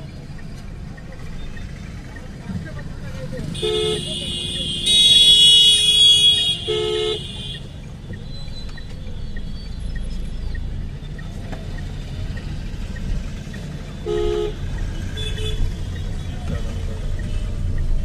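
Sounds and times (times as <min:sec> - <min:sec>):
car engine and tyres rumbling: 0:00.0 - 0:18.0
lower horn beep: 0:03.5 - 0:07.7, 0:14.0 - 0:16.2
high-pitched car horn blast: 0:03.6 - 0:07.6.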